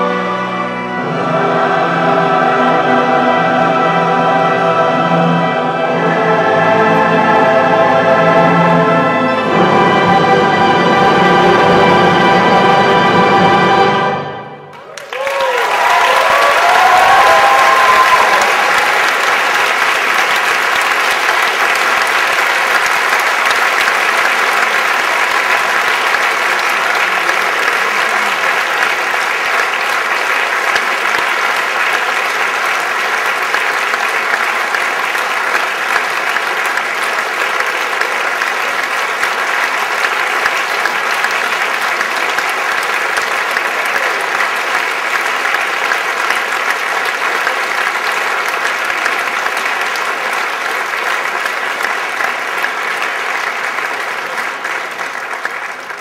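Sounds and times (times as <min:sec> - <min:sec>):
audience applauding: 0:14.6 - 0:56.0.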